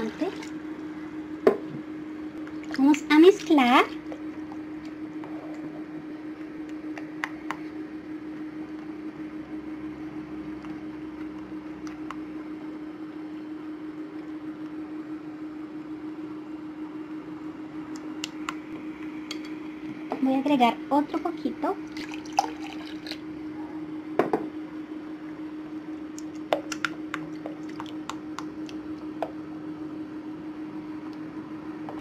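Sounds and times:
steady low hum: 0.0 - 32.0
spatula stirring slime: 26.2 - 28.9.

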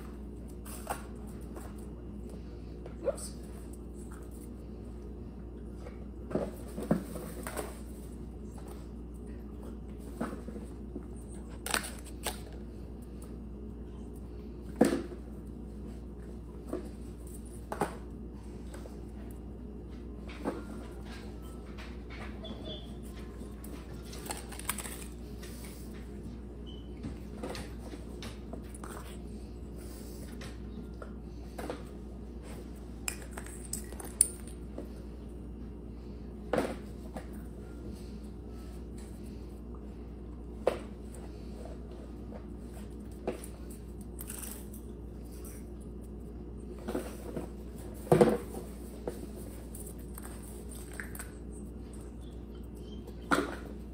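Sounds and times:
steady low hum: 0.0 - 53.9.

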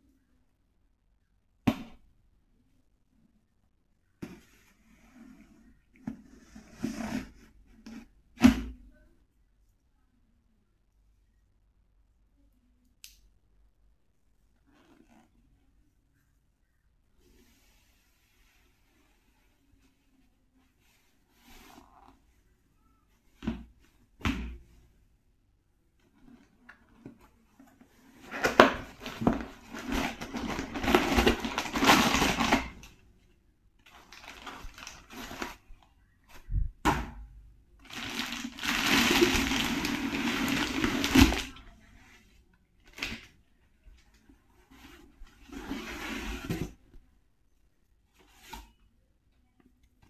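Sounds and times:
packaging rustling and crinkling: 28.2 - 32.9, 33.9 - 35.7, 37.8 - 41.6.

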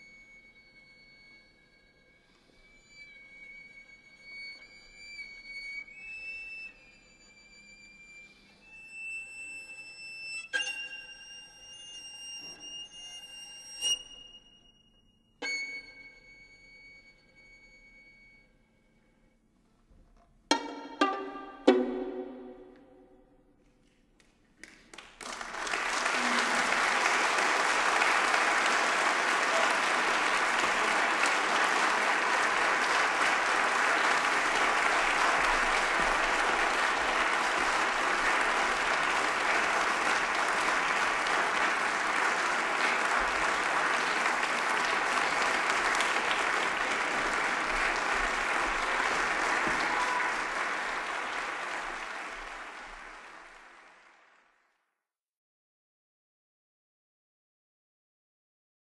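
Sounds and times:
audience applauding: 24.2 - 54.7.

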